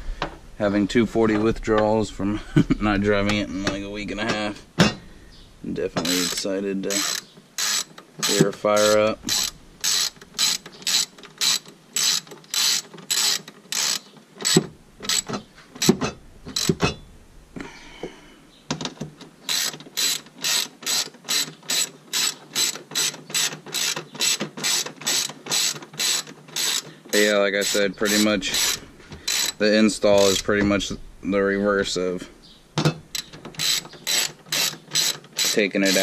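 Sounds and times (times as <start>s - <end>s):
ratchet wrench clicking: 6.0s - 16.9s, 19.5s - 29.6s, 33.1s - 36.0s.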